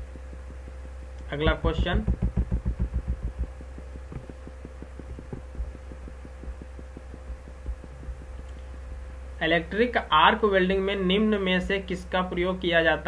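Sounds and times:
fast faint ticks: 0.0s - 11.8s
low electrical hum: 0.0s - 13.0s.

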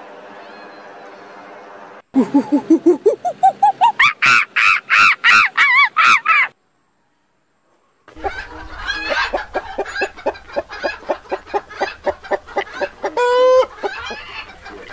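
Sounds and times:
hens clucking: 2.2s - 6.5s, 8.1s - 14.9s.

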